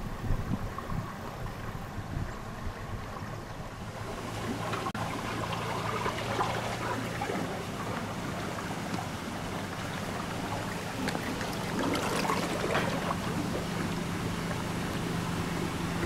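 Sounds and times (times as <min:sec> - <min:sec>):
car engine humming: 0:01.2 - 0:16.0.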